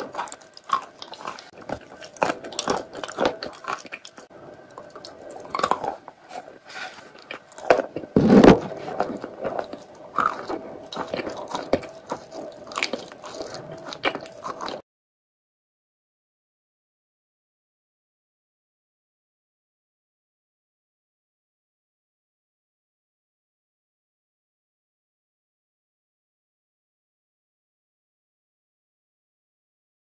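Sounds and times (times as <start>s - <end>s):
chewing chalk crunches: 0.0s - 14.8s.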